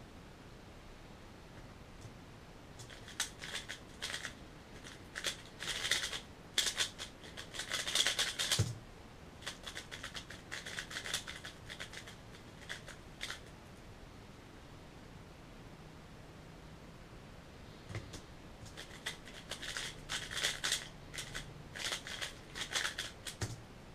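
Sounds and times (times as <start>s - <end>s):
speed cube clicking: 2.8s - 8.8s, 9.4s - 13.5s, 17.9s - 23.6s.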